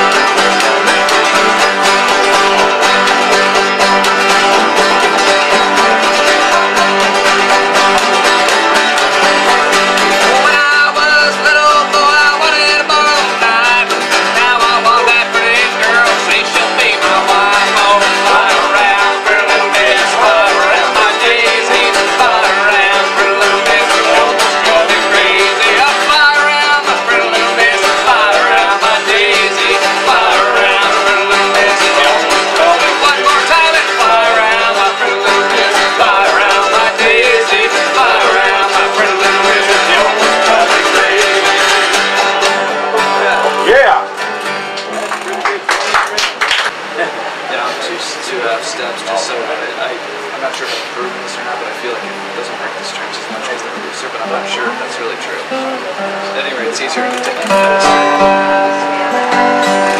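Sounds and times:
mandolin picking: 0.0 - 47.9, 48.6 - 59.9
acoustic guitars strumming: 0.0 - 59.9
man singing: 9.4 - 43.9.

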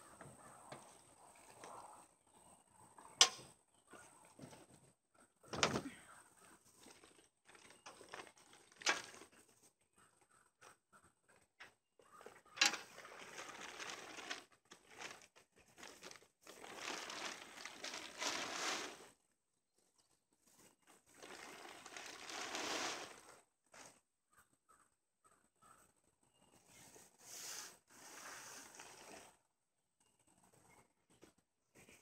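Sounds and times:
plastic tarp rustling: 5.5 - 9.7, 12.2 - 19.2, 20.5 - 23.9, 27.5 - 29.4.

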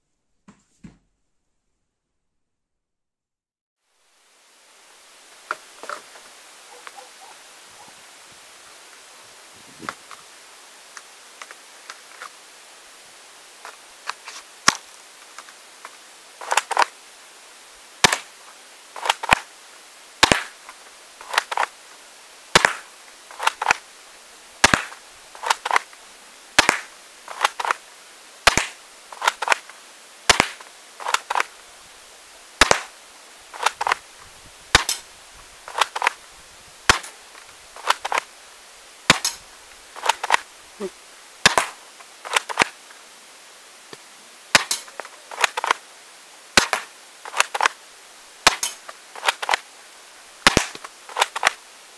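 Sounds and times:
toy gun firing clacks: 18.0 - 18.3, 19.0 - 19.5, 20.2 - 20.5, 21.2 - 21.7, 22.6 - 23.8, 24.6 - 25.8, 26.6 - 27.8, 28.4 - 29.6, 30.3 - 31.5, 32.6 - 32.9, 33.6 - 34.0, 34.7 - 35.0, 35.7 - 36.2, 36.9 - 37.1, 37.8 - 38.2, 39.1 - 39.4, 40.0 - 40.4, 41.4 - 42.7, 44.5 - 45.8, 46.6 - 47.7, 48.4 - 49.6, 50.4 - 51.6.

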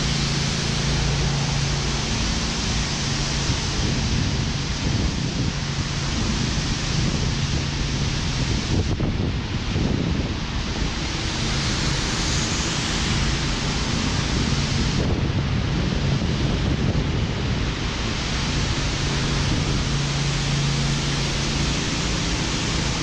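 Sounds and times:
passing traffic engine hum: 0.0 - 8.4, 17.1 - 23.0
wind rushing on microphone: 0.0 - 23.0.

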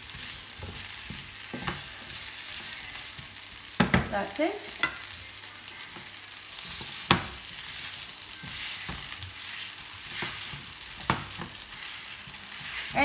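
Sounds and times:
potatoes sizzling in a frying pan: 0.0 - 13.0.

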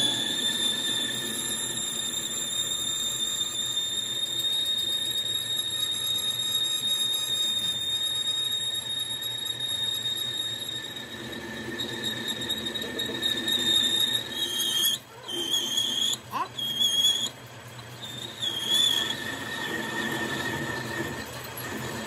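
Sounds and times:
machine tool metal squeal: 0.0 - 22.0.

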